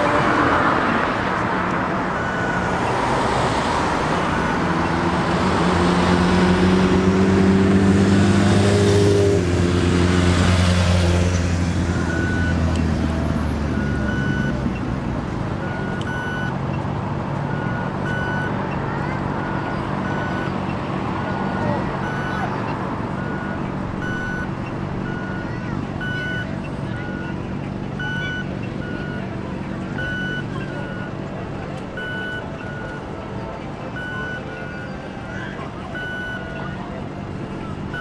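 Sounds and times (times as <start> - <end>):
large vehicle engine passing: 0.0 - 38.0
steady traffic noise: 0.0 - 38.0
short high beeps: 2.2 - 3.1, 12.1 - 12.6, 13.8 - 14.6, 15.6 - 16.5, 17.5 - 18.6, 19.4 - 20.6, 21.3 - 27.4, 28.0 - 29.3, 29.9 - 31.2, 32.0 - 33.1, 34.0 - 36.8.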